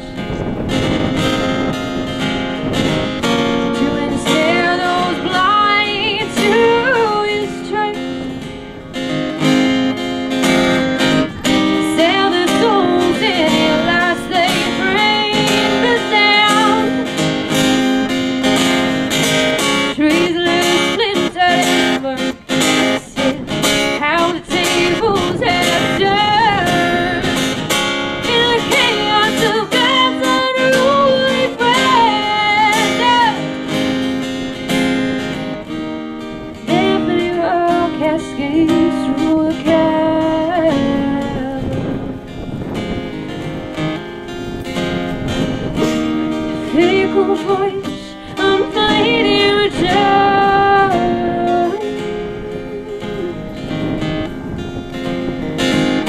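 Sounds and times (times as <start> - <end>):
strummed acoustic guitar: 0.0 - 56.0
woman singing: 3.7 - 8.4, 11.0 - 27.6, 28.2 - 33.6, 36.6 - 42.1, 46.3 - 54.0.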